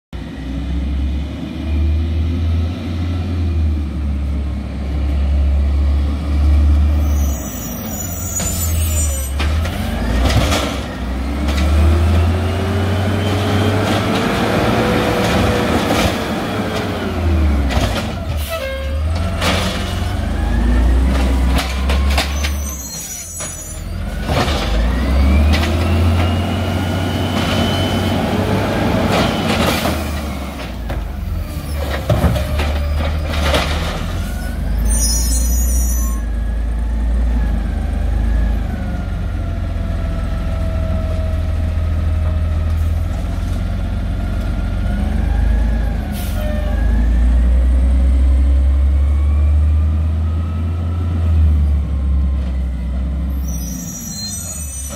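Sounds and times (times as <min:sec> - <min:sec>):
truck engine revving: 0:09.5 - 0:18.3, 0:23.9 - 0:34.9.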